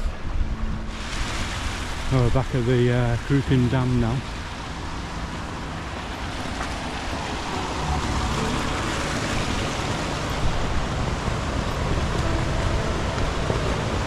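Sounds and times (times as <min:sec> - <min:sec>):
stream flowing over rocks: 0:00.0 - 0:14.0
low rumble: 0:04.5 - 0:14.0.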